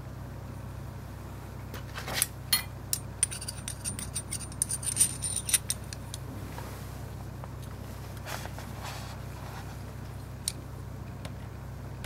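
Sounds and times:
metal tool clicking and scraping: 3.0 - 6.2.

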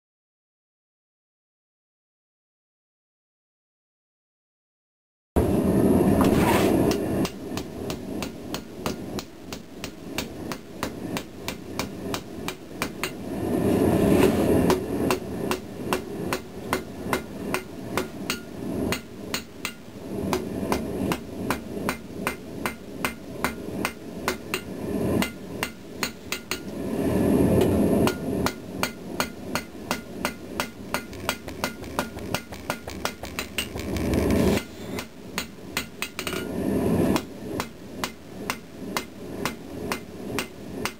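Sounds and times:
hammer striking steel on anvil: 6.9 - 13.2, 14.7 - 26.7, 28.0 - 33.7, 34.6 - 36.5, 37.1 - 40.9
rushing noise: 10.0 - 25.6, 26.5 - 35.4.

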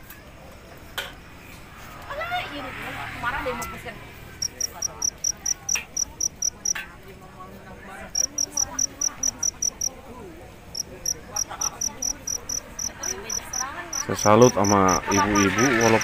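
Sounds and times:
cricket chirping: 4.3 - 6.8, 8.2 - 10.0, 10.7 - 16.0.

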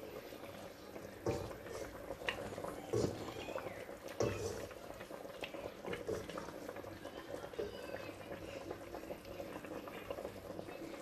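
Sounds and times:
wooden spoon stirring meat: 0.0 - 6.7
broth bubbling in a pot: 0.0 - 11.0.

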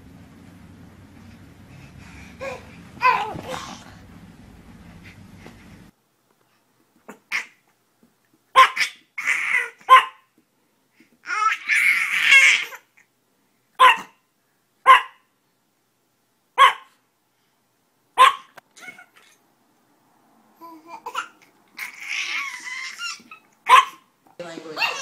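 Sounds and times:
baby babbling and laughing: 2.4 - 3.8, 11.2 - 12.9, 20.6 - 23.5
small dog barking: 8.5 - 9.0, 9.6 - 10.3, 13.8 - 14.2, 14.8 - 15.3, 16.6 - 17.0, 18.2 - 18.6, 23.6 - 24.1, 24.8 - 25.0.

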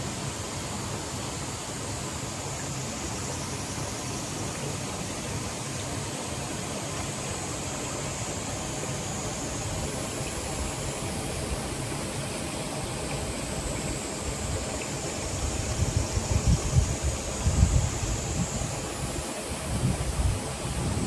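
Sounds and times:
mountain stream water rushing: 0.0 - 21.0
wind rumble on microphone: 15.3 - 21.0.

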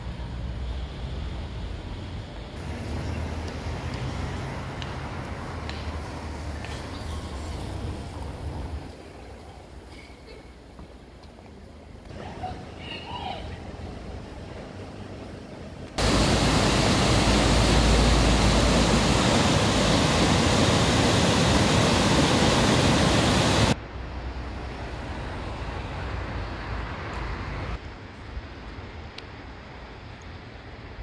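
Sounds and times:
quiet outdoor background: 0.0 - 31.0
river rushing over rapids: 16.0 - 23.8.

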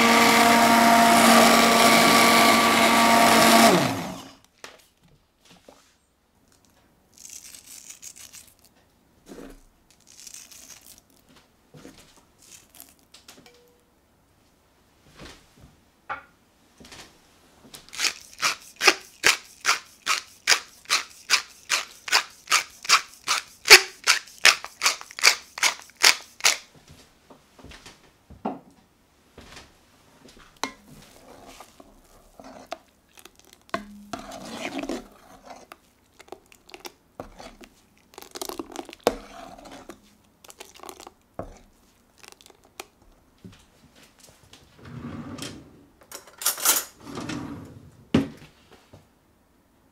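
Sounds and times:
pepper mill grinding: 6.6 - 8.7, 9.9 - 11.2, 12.4 - 13.1, 17.9 - 26.7, 31.0 - 43.0.

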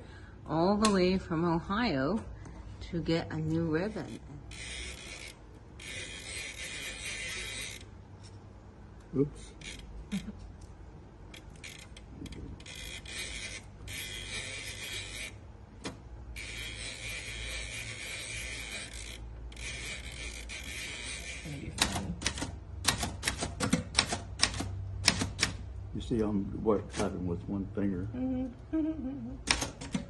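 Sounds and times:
typewriter ribbon spool rasping: 3.8 - 8.0, 11.3 - 15.4, 16.3 - 25.5.

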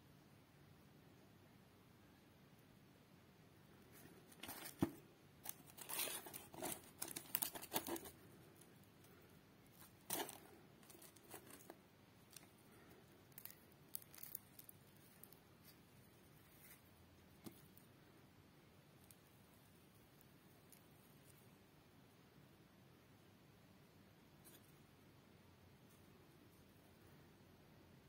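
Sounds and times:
paper liner rustling: 4.0 - 8.7, 9.7 - 17.6
hands tearing food: 9.8 - 15.8.

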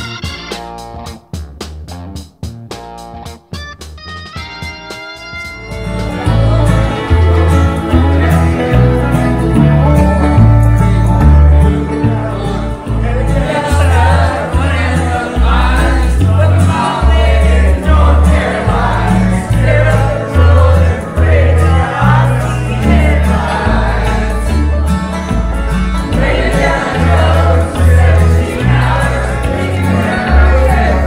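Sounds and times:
backing track with bass line: 0.0 - 31.0
people singing karaoke: 5.8 - 10.0, 11.6 - 31.0.

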